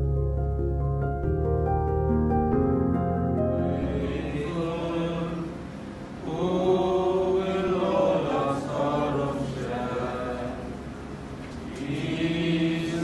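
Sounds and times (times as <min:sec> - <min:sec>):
congregation singing a hymn: 0:03.5 - 0:13.0.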